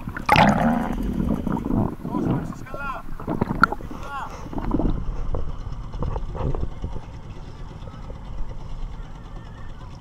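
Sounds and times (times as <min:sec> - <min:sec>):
water splashing: 0:00.0 - 0:05.1
low steady rumble: 0:00.0 - 0:10.0.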